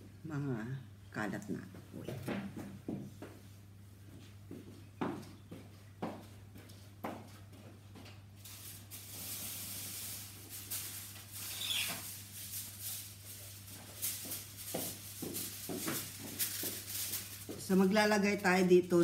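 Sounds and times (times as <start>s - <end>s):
rustling and crackling: 6.6s - 19.0s.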